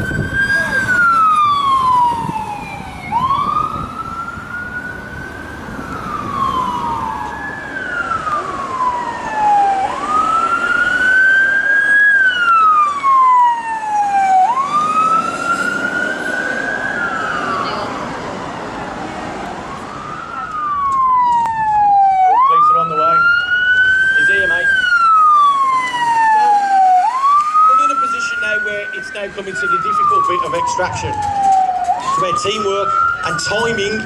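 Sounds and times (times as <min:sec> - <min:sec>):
police siren wailing: 0:00.0 - 0:34.0.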